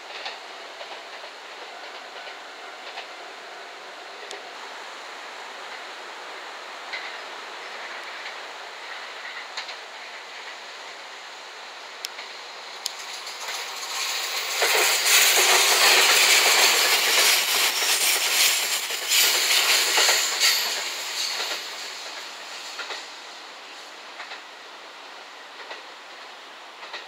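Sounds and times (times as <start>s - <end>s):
train wheels on rails: 0.0s - 27.0s
wheels clacking over rail joints: 12.0s - 24.5s, 25.5s - 25.9s, 26.8s - 27.0s.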